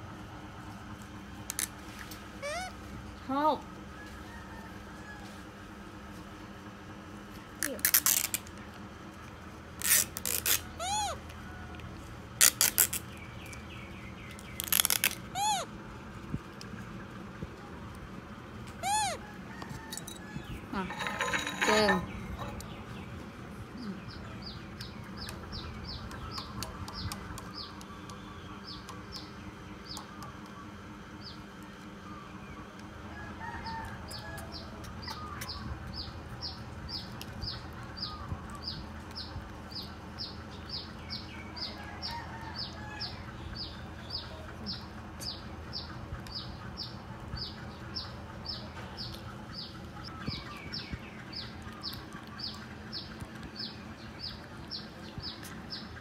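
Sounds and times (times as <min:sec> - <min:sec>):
chickens peeping: 0:18.6 - 0:56.0.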